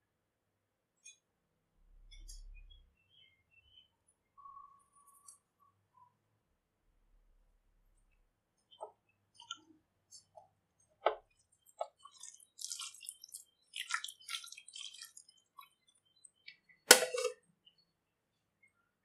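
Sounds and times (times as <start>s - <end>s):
hand squishing wet marinade: 8.6s - 17.8s.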